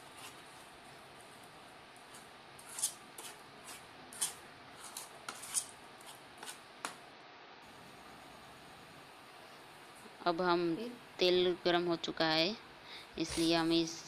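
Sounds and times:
spoon scraping a bowl: 2.1 - 6.6.

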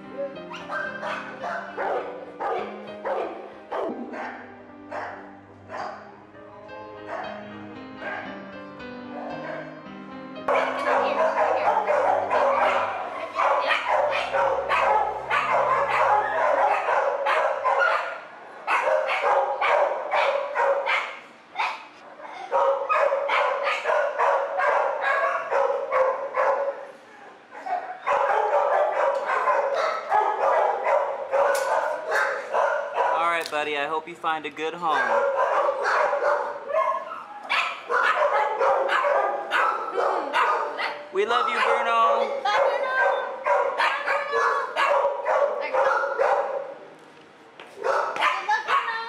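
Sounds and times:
dogs barking: 0.0 - 6.2, 7.0 - 8.5, 9.1 - 9.8, 10.5 - 33.4, 34.8 - 46.9, 47.7 - 49.0
background music: 0.0 - 21.0.

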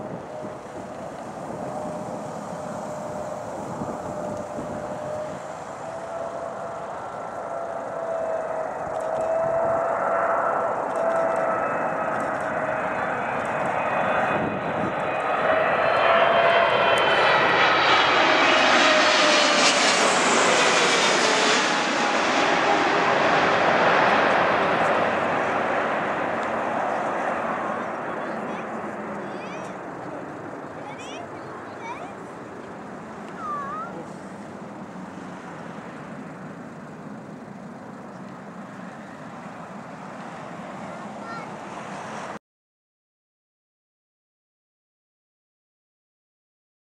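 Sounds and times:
jet airliner passing low overhead: 0.0 - 42.4
jet engine whine falling in pitch: 0.0 - 42.4.

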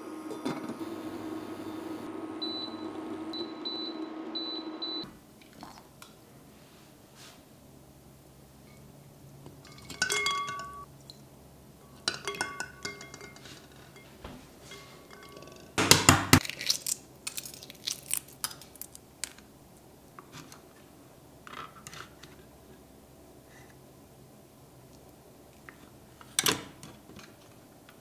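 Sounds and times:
egg shell cracking: 16.4 - 19.4
egg shell crackling as peeled: 16.4 - 19.5.

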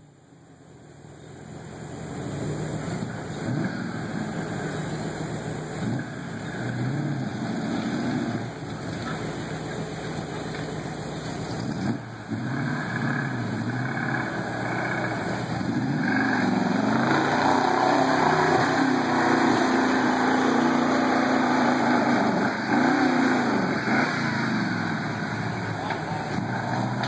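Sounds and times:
truck engine revving: 2.0 - 27.0.

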